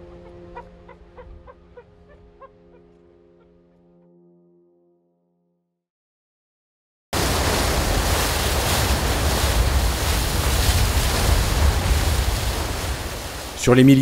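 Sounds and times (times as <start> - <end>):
wind: 0.0 - 3.6, 7.2 - 14.0
seawater rushing along hull: 7.2 - 14.0.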